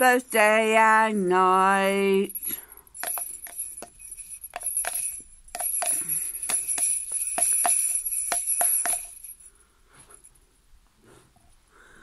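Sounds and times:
jingle bells shaken: 0:01.6 - 0:10.4.

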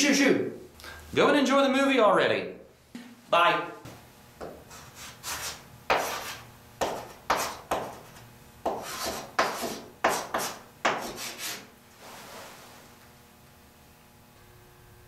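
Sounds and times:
chalk scraping on chalkboard: 0:04.6 - 0:12.8.

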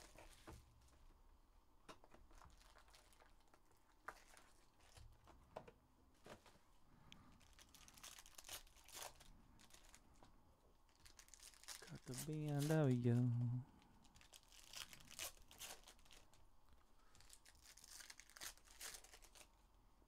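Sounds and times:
small crackles and clicks: 0:01.9 - 0:05.0
foil packs crinkling: 0:02.0 - 0:05.3, 0:07.2 - 0:10.2, 0:10.8 - 0:13.3, 0:13.9 - 0:16.4, 0:17.0 - 0:19.6.

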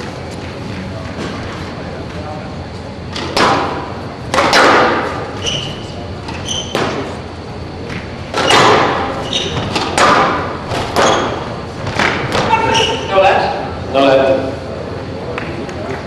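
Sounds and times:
squash ball hitting racquets and walls: 0:03.1 - 0:07.2, 0:07.8 - 0:13.2
shoe squeaks on court floor: 0:05.4 - 0:07.0, 0:08.4 - 0:09.8, 0:12.6 - 0:13.1.

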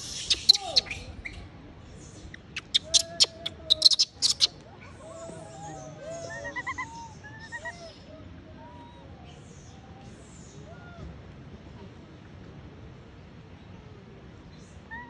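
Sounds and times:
animal chirping calls: 0:00.0 - 0:01.4, 0:02.3 - 0:04.6, 0:05.7 - 0:07.9.

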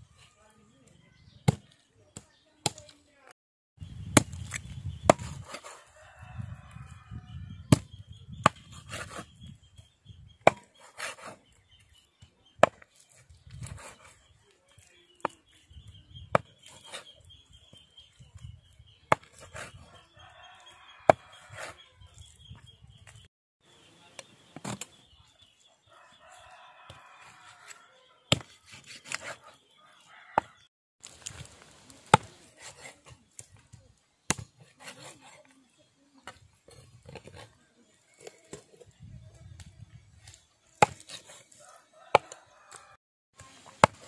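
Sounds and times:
cleaver chopping on wooden block: 0:04.2 - 0:05.7, 0:10.4 - 0:11.4, 0:12.6 - 0:12.9, 0:30.4 - 0:30.6, 0:40.8 - 0:41.4, 0:42.1 - 0:42.4, 0:43.7 - 0:44.0
rooster crowing: 0:05.6 - 0:07.5, 0:19.9 - 0:21.8, 0:25.9 - 0:28.2, 0:29.8 - 0:30.7, 0:41.6 - 0:43.0.

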